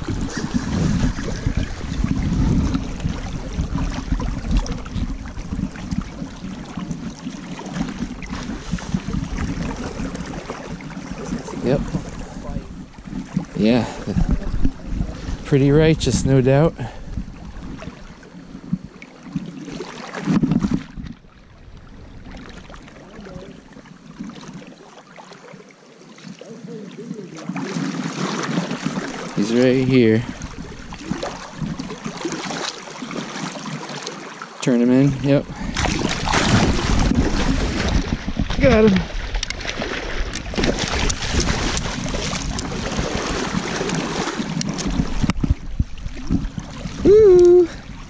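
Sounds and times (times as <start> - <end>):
water splashing around wader: 0.0 - 48.0
fish splashing in a net: 35.8 - 45.5.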